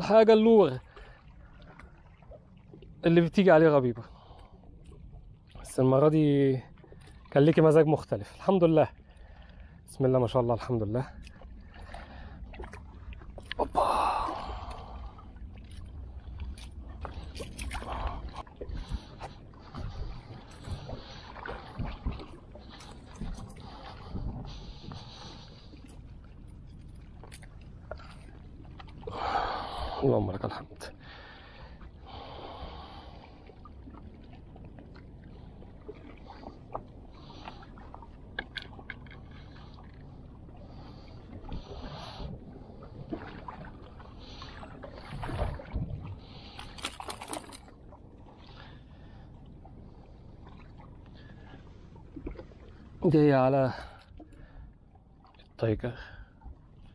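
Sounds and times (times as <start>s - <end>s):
sea wash: 0.0s - 56.9s
seawater lapping among rocks: 0.0s - 56.9s
wind: 0.0s - 56.9s
fishing rod clicking on rocks: 46.6s - 47.7s.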